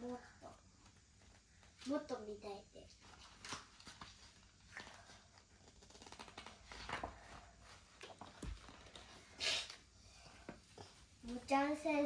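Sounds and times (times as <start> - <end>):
paper rustling: 3.0 - 9.2.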